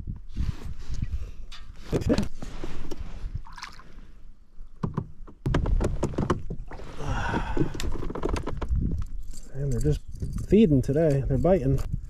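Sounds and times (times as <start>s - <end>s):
water splashing around kayak: 2.6s - 4.2s, 5.5s - 8.4s.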